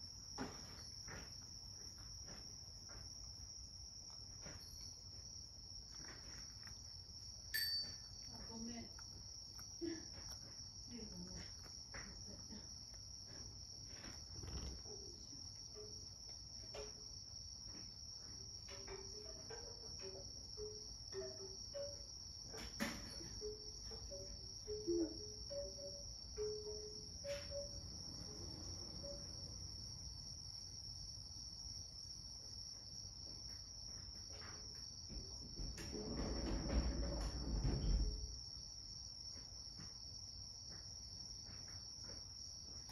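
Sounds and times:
cat licking and chewing food: 0:00.6 - 0:14.8.

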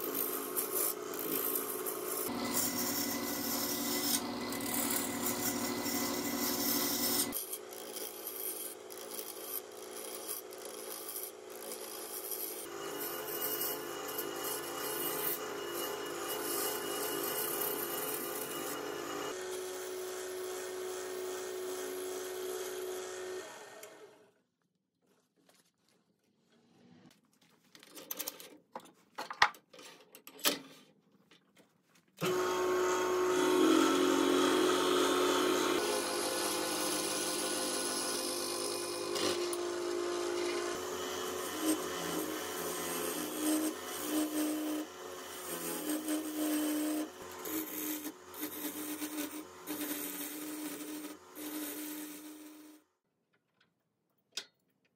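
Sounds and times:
turning tool rasping on wood: 0:00.0 - 0:19.2, 0:33.4 - 0:52.7
wood lathe motor humming: 0:00.1 - 0:08.6, 0:32.2 - 0:52.8.

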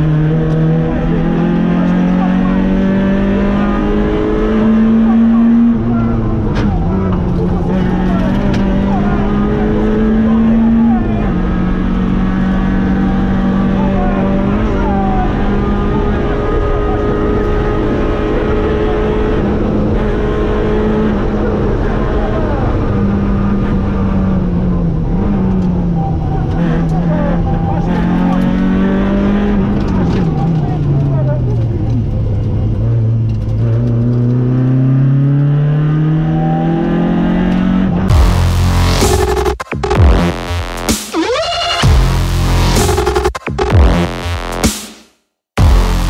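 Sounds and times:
rally car engine running hard: 0:00.0 - 0:44.7, 0:45.6 - 0:46.0
electronic music: 0:38.1 - 0:46.0.

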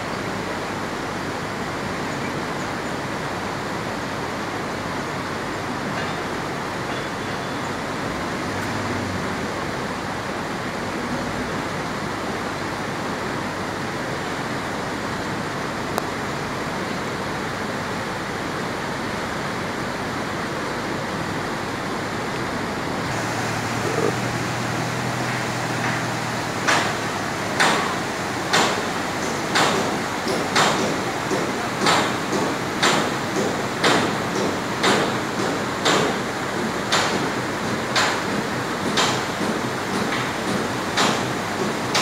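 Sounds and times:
river rapids rushing: 0:00.2 - 0:31.4
distant heavy machinery: 0:23.1 - 0:35.6
sharp knocks: 0:25.2 - 0:36.2.

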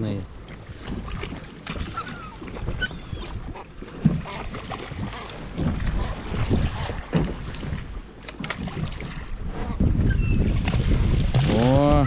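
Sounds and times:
water lapping against boat hull: 0:00.0 - 0:12.0
wind buffeting microphone: 0:05.0 - 0:12.0.

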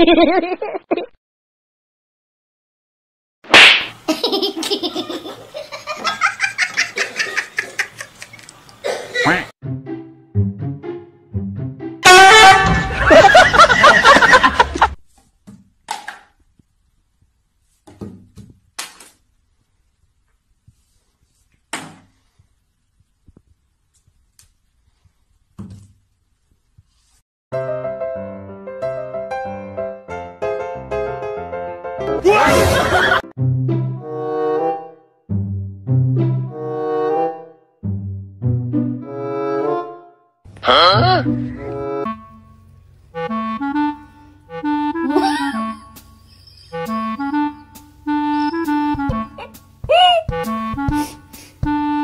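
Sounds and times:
laugh track: 0:00.0 - 0:01.1, 0:04.1 - 0:09.5, 0:12.6 - 0:15.0, 0:32.3 - 0:33.3, 0:44.9 - 0:45.8, 0:49.0 - 0:50.4.

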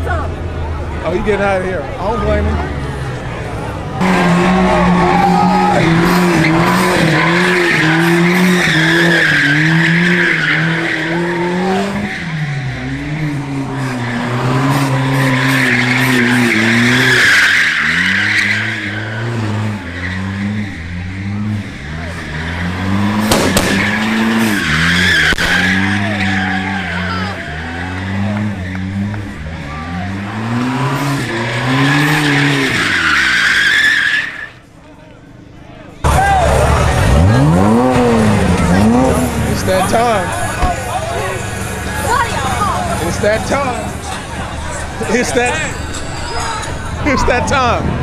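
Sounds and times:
car engine revving: 0:00.0 - 0:34.4, 0:36.0 - 0:48.0
tyres squealing: 0:04.0 - 0:34.6
sharp crack: 0:23.2 - 0:24.2.

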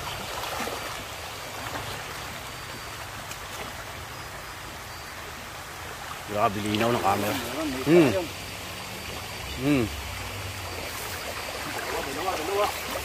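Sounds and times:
stream water splashing around legs: 0:00.0 - 0:13.0.

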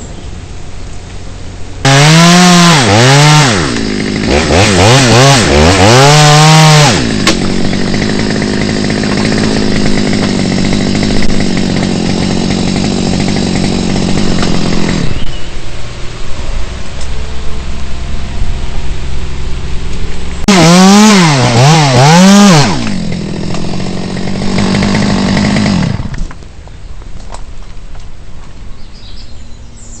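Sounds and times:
chainsaw engine revving: 0:01.8 - 0:15.4, 0:20.4 - 0:26.4.

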